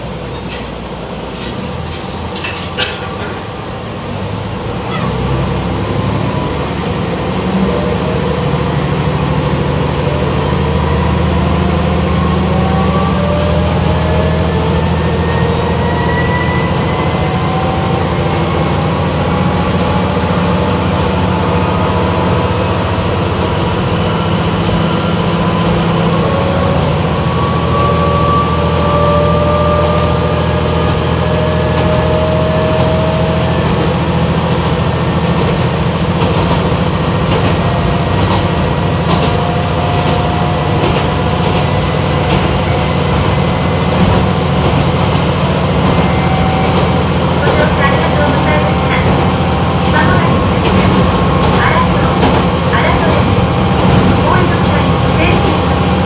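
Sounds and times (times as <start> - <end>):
diesel engine drone: 0.0 - 56.0
wheels clicking over rail joints: 0.2 - 3.6.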